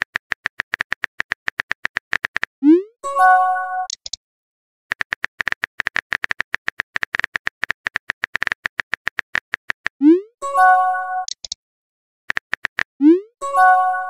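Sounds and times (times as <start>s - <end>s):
keyboard tapping clicks: 0.0s - 2.5s, 3.8s - 4.2s, 4.9s - 10.0s, 11.2s - 11.6s, 12.3s - 12.9s
chime: 13.4s - 14.0s.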